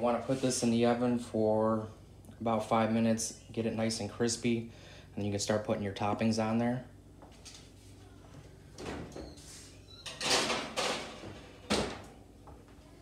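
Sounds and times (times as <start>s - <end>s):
baking sheet scraping: 0.0s - 0.9s, 9.3s - 10.0s.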